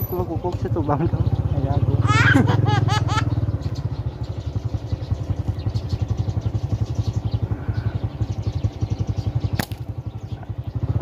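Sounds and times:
small engine running: 0.0s - 11.0s
sharp click: 9.6s - 9.9s.

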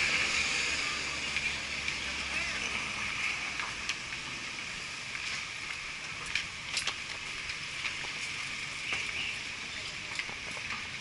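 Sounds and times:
passing vehicles hiss: 0.0s - 6.7s.

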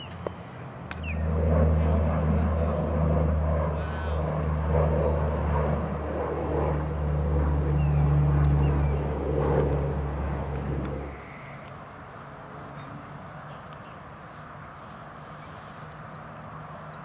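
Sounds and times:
engine humming: 0.0s - 11.6s.

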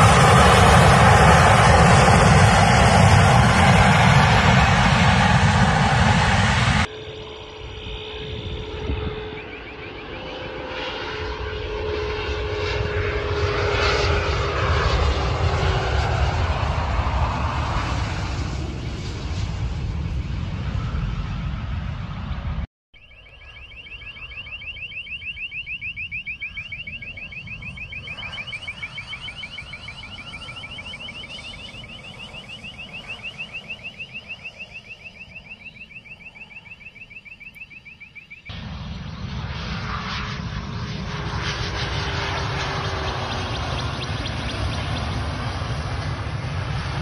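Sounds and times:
jet engines roaring: 0.0s - 47.0s
fast high-pitched pulsing: 23.4s - 38.0s.

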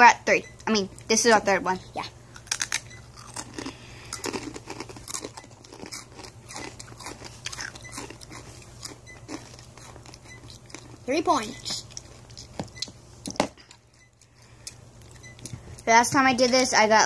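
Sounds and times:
people crunching chips: 2.3s - 11.1s.

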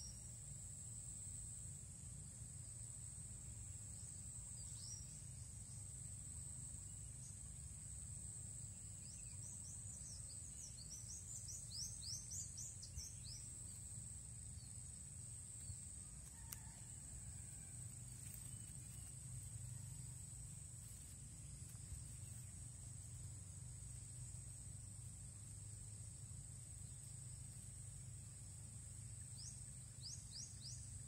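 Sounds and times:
insect drone: 0.0s - 31.0s.

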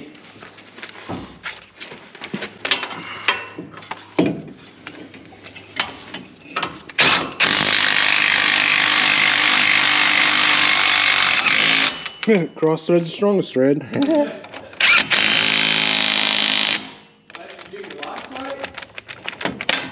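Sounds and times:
impact wrench running: 7.0s - 12.2s, 14.8s - 19.9s
socket and bolt clanking: 17.3s - 19.9s.

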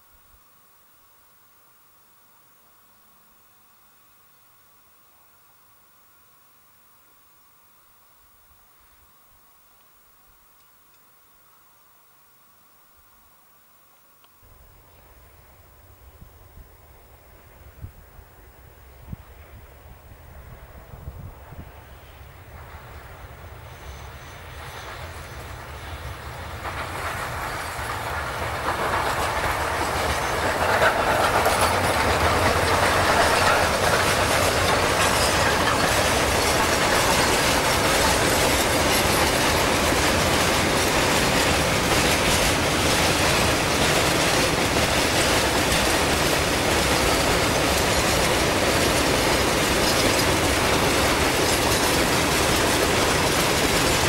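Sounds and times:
steam locomotive approaching: 14.5s - 54.0s
train wheels and wagons running past: 15.1s - 54.0s.

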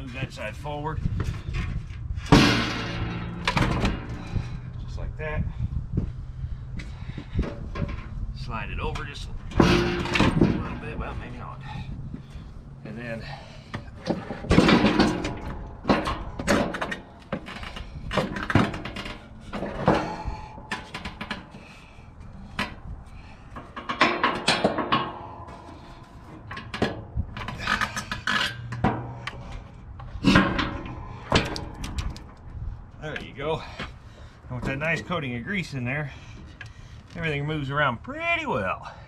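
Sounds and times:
metal clunks and knocks: 1.2s - 4.7s, 6.8s - 8.2s, 8.8s - 12.5s, 13.3s - 32.4s.

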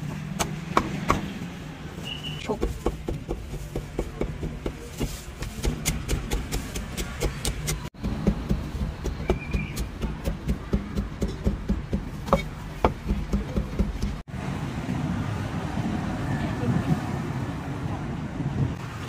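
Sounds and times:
low street rumble: 0.0s - 19.0s
cleaver chopping meat on wood: 0.3s - 1.3s, 2.6s - 14.2s.

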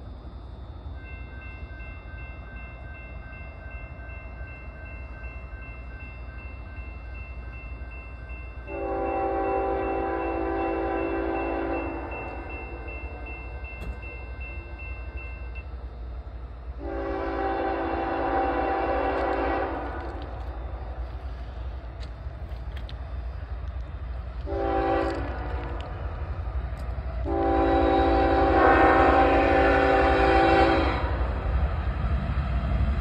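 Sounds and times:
locomotive air horn blasts: 8.7s - 12.9s, 16.8s - 20.4s, 24.4s - 25.9s, 27.2s - 31.3s.

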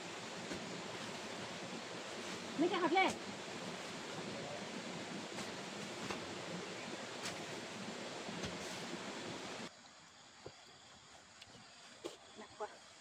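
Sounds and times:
rushing outdoor noise: 0.0s - 9.7s.

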